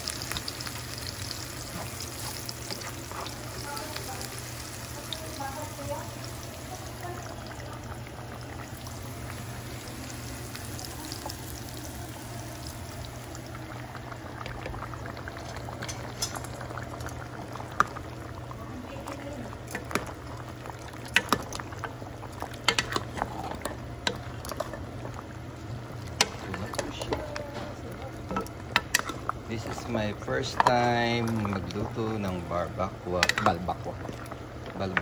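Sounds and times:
stew bubbling in a pot: 0.0s - 35.0s.

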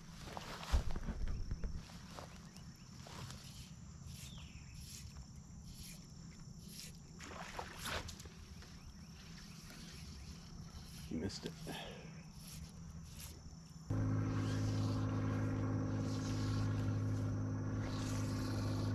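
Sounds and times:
wind rumble on microphone: 0.6s - 1.8s
steady high-pitched whine: 8.9s - 18.9s.

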